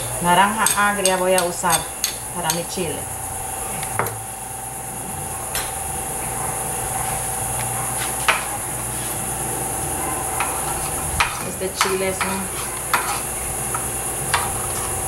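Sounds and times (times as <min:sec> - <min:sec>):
background hum and hiss: 0:00.0 - 0:15.0
metal spoon scraping clay bowl: 0:10.4 - 0:13.4.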